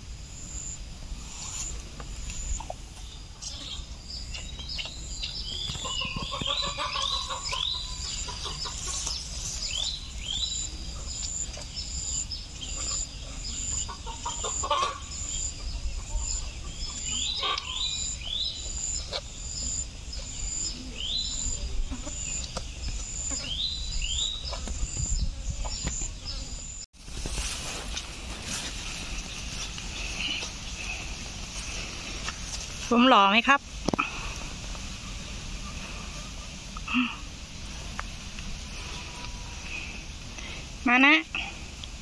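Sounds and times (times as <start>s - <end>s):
high-pitched pulsing insect call: 0.0s - 26.9s
birds chirping: 1.5s - 26.9s.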